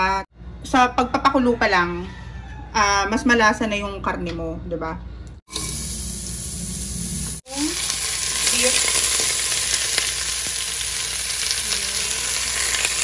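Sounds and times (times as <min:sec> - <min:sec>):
meat sizzling in hot oil: 0:05.5 - 0:13.0.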